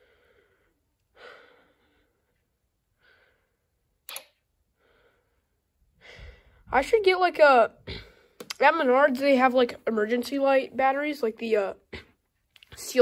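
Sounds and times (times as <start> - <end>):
sharp click: 4.0 - 4.4.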